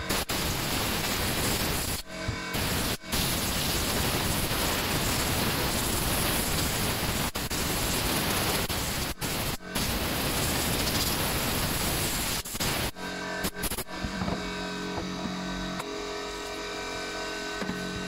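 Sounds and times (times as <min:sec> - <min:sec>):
compressed air blow gun hissing: 0:00.0 - 0:13.9.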